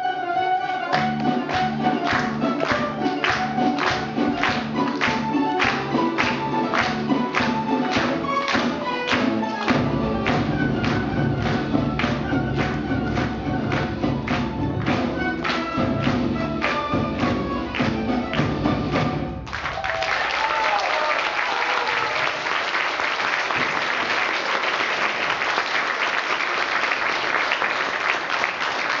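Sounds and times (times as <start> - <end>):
plucked string ensemble playing: 0.0 - 19.5
audience applauding: 0.9 - 18.6, 19.4 - 29.0.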